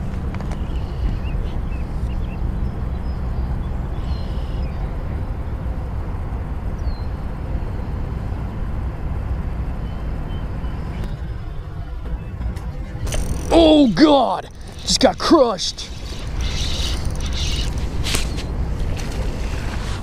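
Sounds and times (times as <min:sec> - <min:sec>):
low outdoor rumble: 0:00.0 - 0:20.0.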